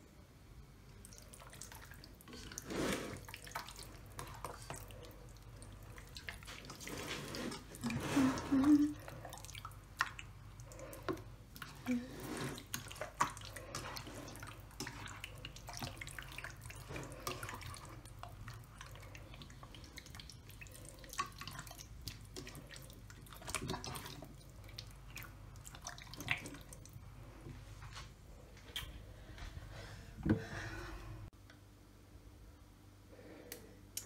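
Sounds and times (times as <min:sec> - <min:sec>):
hand kneading wet chicken: 0:01.0 - 0:27.0.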